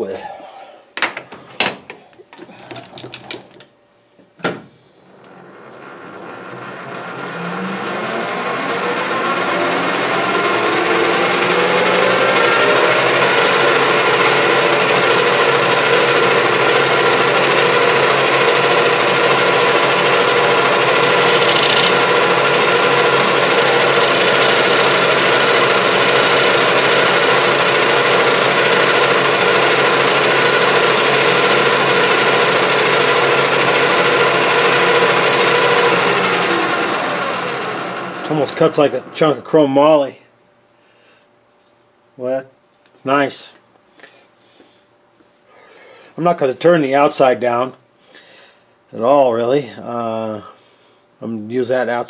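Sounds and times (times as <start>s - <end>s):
metal lathe whine: 5.1s - 39.9s.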